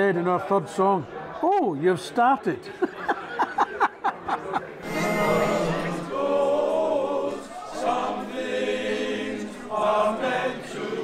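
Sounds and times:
male chorus singing a cappella: 0:04.8 - 0:11.0.

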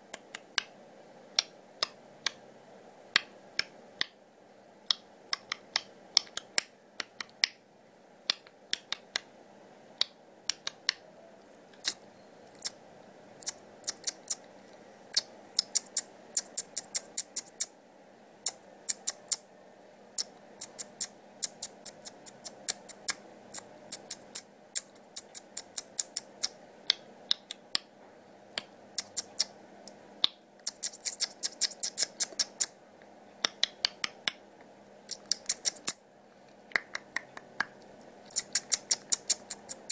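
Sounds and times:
faint steady hum: 0:00.0 - 0:39.9
sharp clicks: 0:15.1 - 0:17.7, 0:20.2 - 0:23.2, 0:23.9 - 0:27.9, 0:35.1 - 0:36.0, 0:36.7 - 0:39.9.

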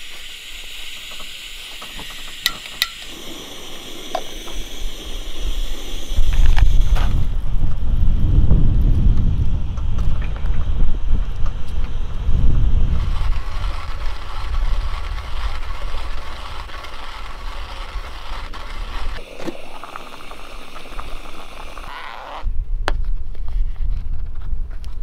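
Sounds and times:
coffee grinder crunching beans: 0:00.0 - 0:07.3, 0:12.9 - 0:22.5
wind buffeting microphone: 0:04.6 - 0:19.2.

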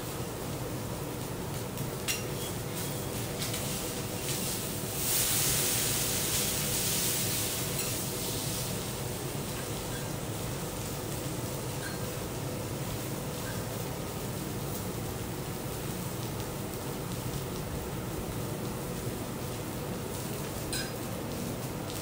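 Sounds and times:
steak sizzling on a griddle: 0:00.0 - 0:22.0
metal spatula clinking on griddle: 0:11.8 - 0:12.1, 0:20.7 - 0:21.0.

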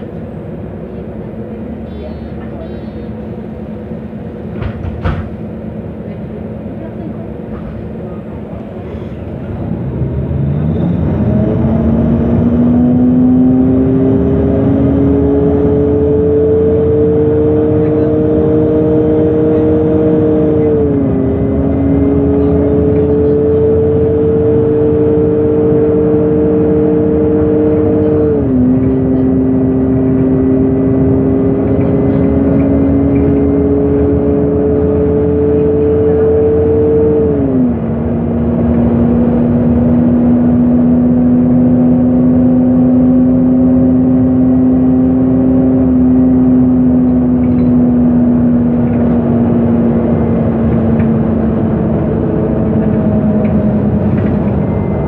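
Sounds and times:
bus engine accelerating: 0:00.0 - 0:55.0.

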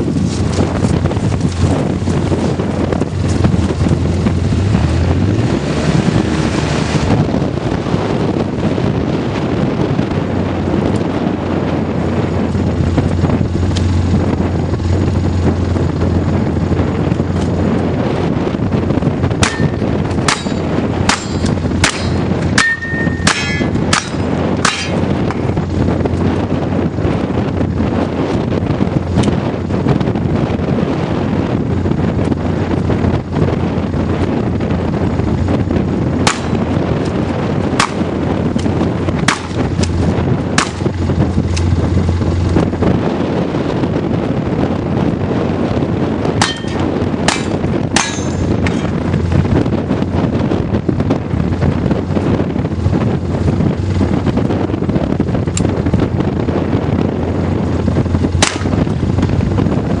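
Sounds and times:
wind buffeting microphone: 0:00.0 - 1:00.0
shotgun shots: 0:58.4 - 0:58.8.

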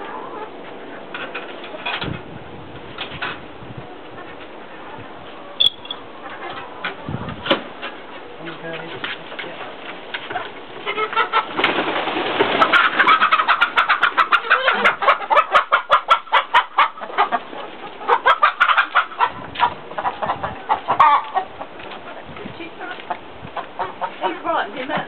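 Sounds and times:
hens clucking: 0:00.0 - 0:02.1, 0:03.0 - 0:25.0.

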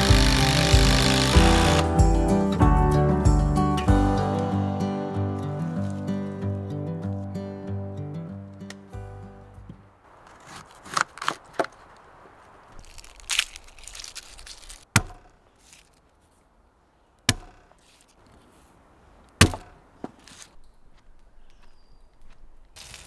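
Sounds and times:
knife chopping on wood: 0:14.9 - 0:15.4, 0:17.3 - 0:17.7, 0:19.4 - 0:19.7.

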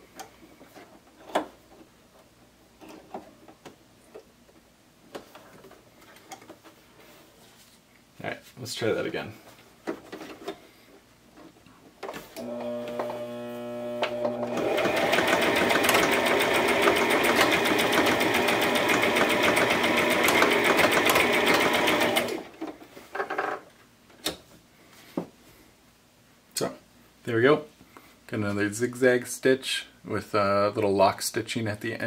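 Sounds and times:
electric sewing machine sewing: 0:12.4 - 0:22.5.

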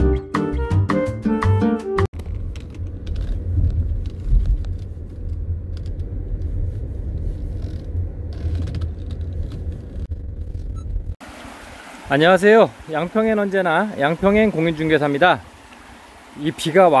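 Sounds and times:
car driving rumble: 0:02.2 - 0:11.4.

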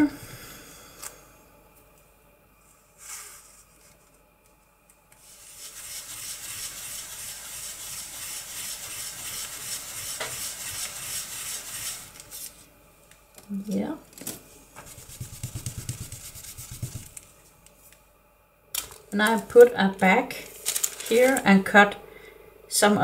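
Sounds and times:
foam tool scrubbing on stencil: 0:05.2 - 0:12.6, 0:14.8 - 0:17.2.

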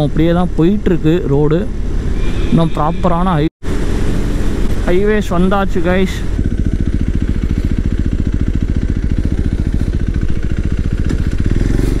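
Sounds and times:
motorcycle engine cruising: 0:03.7 - 0:12.0.

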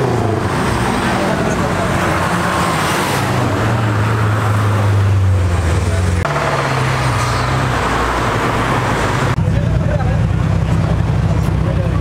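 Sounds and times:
car engines running at low revs: 0:00.0 - 0:07.0, 0:07.7 - 0:12.0.

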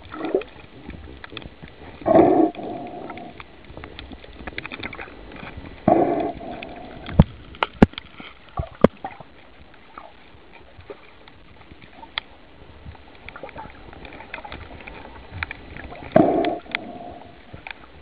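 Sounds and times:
muffled underwater burst: 0:01.8 - 0:03.7, 0:04.9 - 0:07.5, 0:15.8 - 0:18.0.

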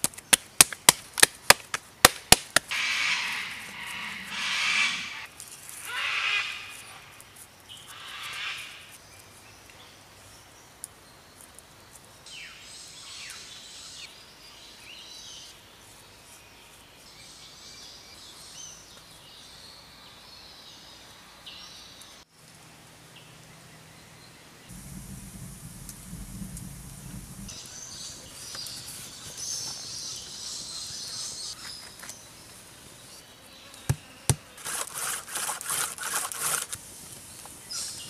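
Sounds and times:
birds chirping: 0:02.7 - 0:10.5, 0:23.2 - 0:34.6
low rumble: 0:24.7 - 0:28.4.

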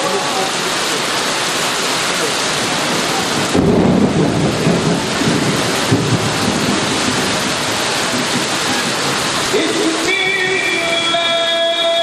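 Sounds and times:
heavy rain: 0:00.0 - 0:12.0
thunder rumbling: 0:02.6 - 0:10.0.

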